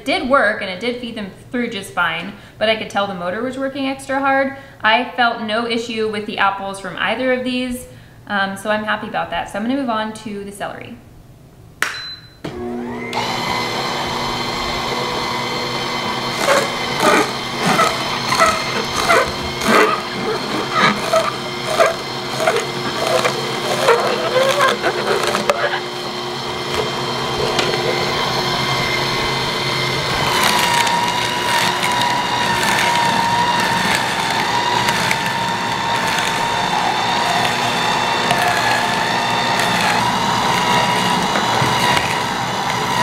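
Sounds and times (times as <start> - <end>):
high-pitched juicer motor whine: 12.5 - 43.0
juicer motor running: 12.5 - 43.0.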